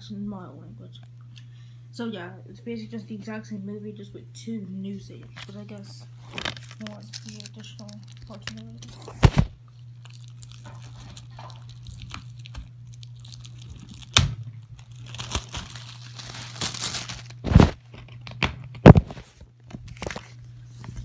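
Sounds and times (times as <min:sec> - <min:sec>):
steady low hum: 0:00.0 - 0:21.0
crinkling and rustling: 0:05.1 - 0:21.0.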